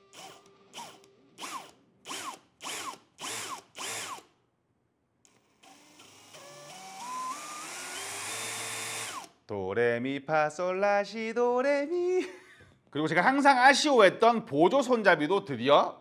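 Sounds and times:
cordless drill motor whine: 0.0s - 4.3s, 5.3s - 9.4s.

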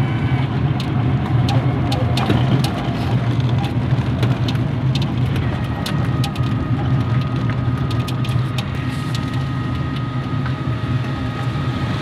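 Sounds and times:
thin steady whine: 0.0s - 2.4s
vehicle engine hum: 0.0s - 12.0s
body clicks and rattles: 0.8s - 10.1s.

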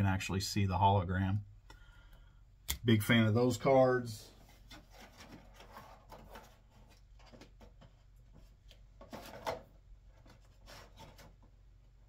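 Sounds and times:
cards rustling and scraping: 4.3s - 11.6s.

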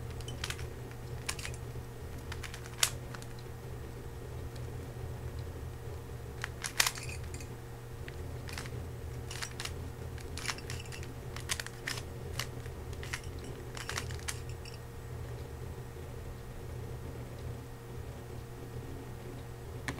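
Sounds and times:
speed cube clicking: 0.0s - 3.3s, 6.4s - 14.8s
low steady hum: 0.0s - 19.9s.

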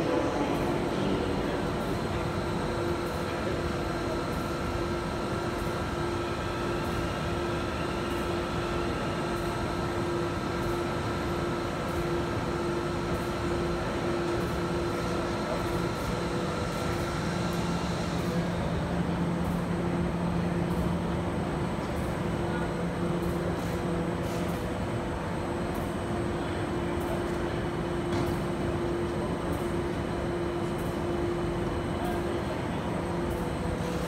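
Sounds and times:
label press machine hum and whir: 0.0s - 34.0s.

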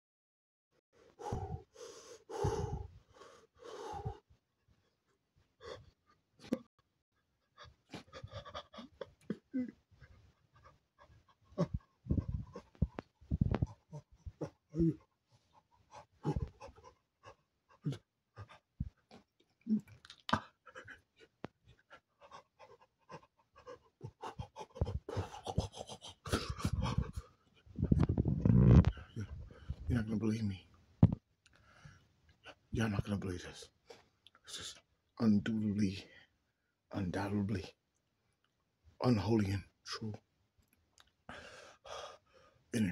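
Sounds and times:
man breathing close to microphone: 1.0s - 4.3s, 11.6s - 15.0s, 23.1s - 29.9s, 41.3s - 42.6s
man breathing heavily: 1.0s - 4.3s, 41.3s - 42.6s.

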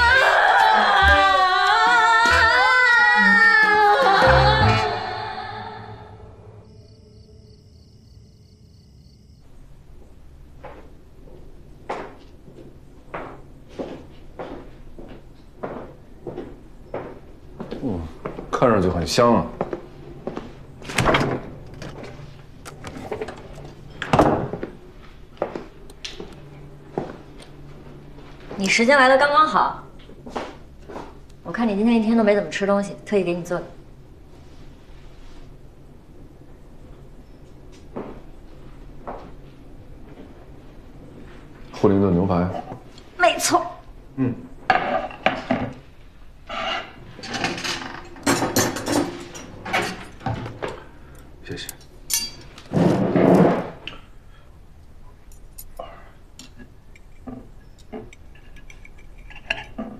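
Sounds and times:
cutlery clinking on a plate: 52.1s - 52.5s, 58.0s - 59.9s
knife and fork scraping a plate: 58.0s - 59.9s.

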